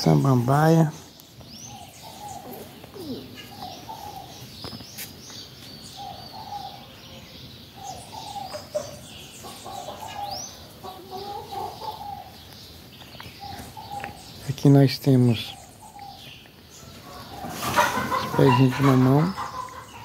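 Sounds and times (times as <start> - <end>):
small birds chirping: 0.0 - 20.0
hens clucking: 2.0 - 4.6, 7.8 - 20.0.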